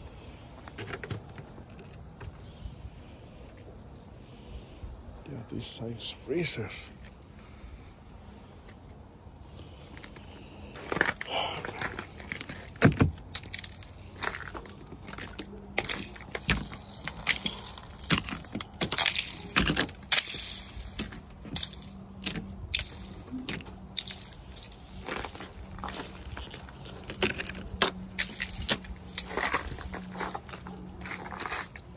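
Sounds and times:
ice cracking and crunching: 0:00.8 - 0:02.6, 0:10.1 - 0:31.9.

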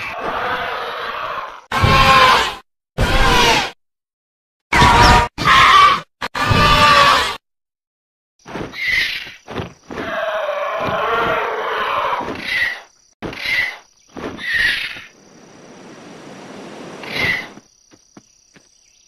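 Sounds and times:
creature screeching: 0:00.0 - 0:03.8, 0:04.7 - 0:07.4, 0:10.0 - 0:12.8, 0:17.0 - 0:17.5
creature shrieks: 0:00.0 - 0:03.8, 0:04.7 - 0:07.4, 0:10.0 - 0:12.8, 0:17.0 - 0:17.6.

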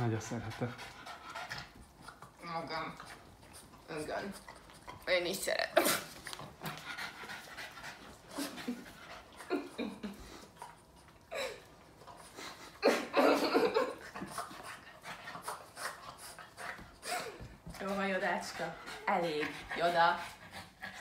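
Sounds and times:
dog panting: 0:00.0 - 0:21.0
dog licking: 0:00.1 - 0:12.7.

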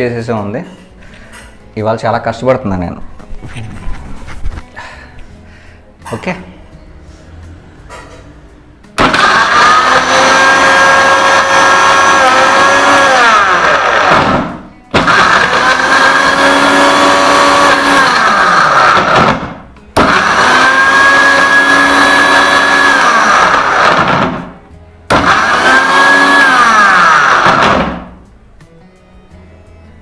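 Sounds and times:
mixer grinder chopping vegetables: 0:09.0 - 0:28.2.

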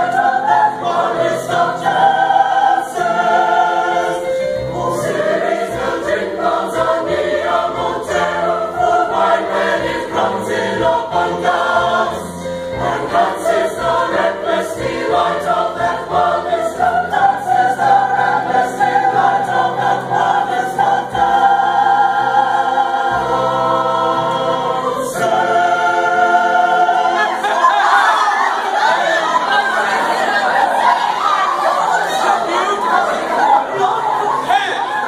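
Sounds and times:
men's choir singing: 0:00.0 - 0:35.0.

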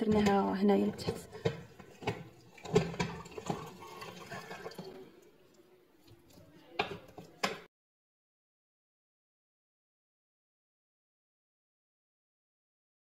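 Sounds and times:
food mill scraping and squelching: 0:00.0 - 0:05.1.

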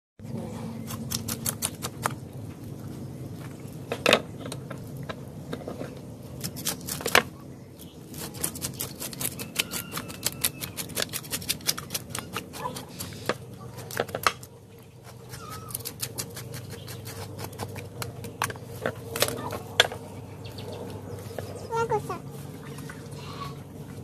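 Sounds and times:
blade scraping fish scales: 0:08.1 - 0:14.2.

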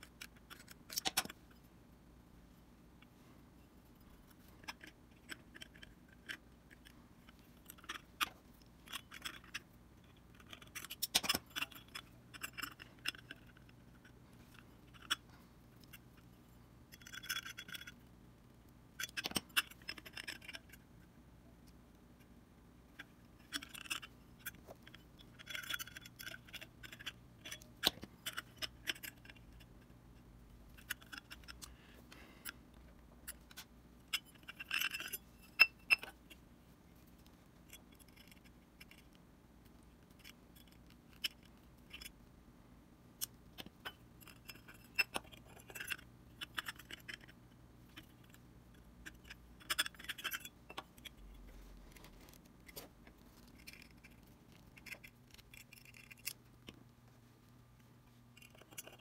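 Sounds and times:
faint steady hum: 0:00.0 - 0:59.0
small metal parts clinking: 0:04.1 - 0:15.2, 0:16.9 - 0:18.0, 0:34.1 - 0:36.3.

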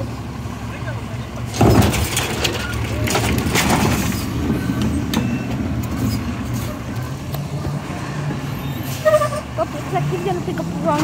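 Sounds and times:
diesel truck engine running: 0:00.0 - 0:11.0
clanks and rattles: 0:01.5 - 0:06.7.

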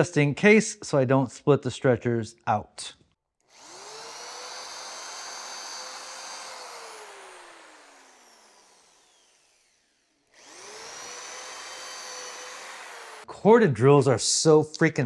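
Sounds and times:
electric drill motor whine: 0:03.4 - 0:13.3.

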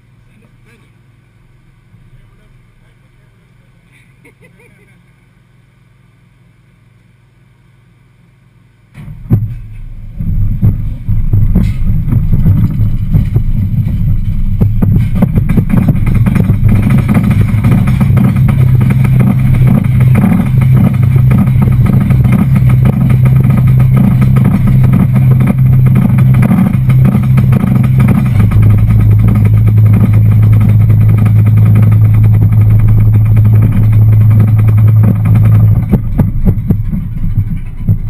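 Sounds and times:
roller coaster lift chain humming: 0:09.0 - 0:38.0.

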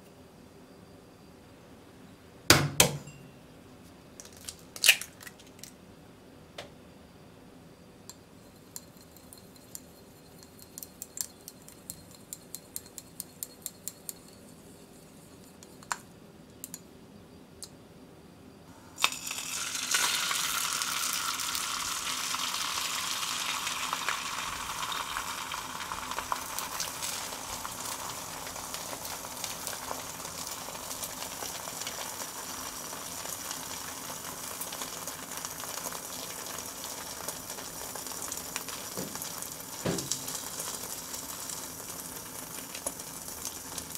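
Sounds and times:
chopsticks beating egg in glass: 0:08.1 - 0:16.0
egg sizzling in frying pan: 0:18.9 - 0:43.9.

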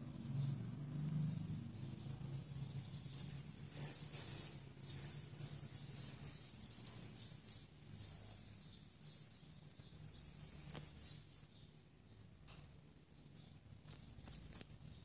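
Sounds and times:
low steady hum: 0:00.0 - 0:12.6
high metallic jingles: 0:00.8 - 0:01.3, 0:03.0 - 0:08.5.

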